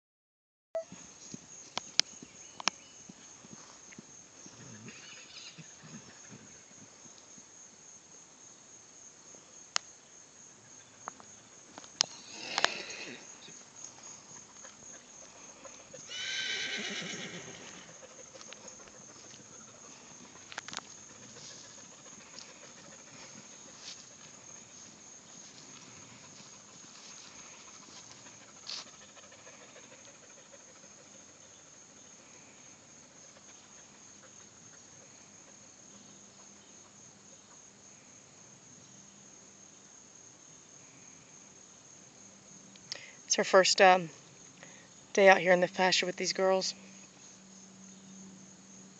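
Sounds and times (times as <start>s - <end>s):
insects chirring: 0.8s - 48.9s
horse whinnying: 4.5s - 6.4s, 12.2s - 13.3s, 16.0s - 18.0s.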